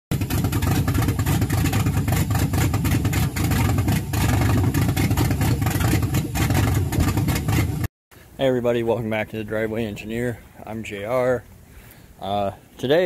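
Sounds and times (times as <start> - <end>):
loud engine running: 0.1 - 7.9.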